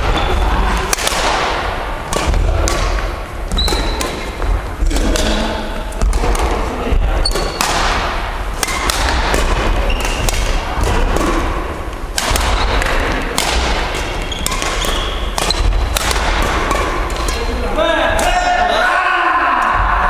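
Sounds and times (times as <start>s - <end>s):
rackets smacking shuttlecocks: 0.0s - 18.4s
shoe squeaks on wooden court: 3.5s - 4.2s, 7.2s - 7.6s, 9.8s - 10.3s, 14.2s - 15.7s.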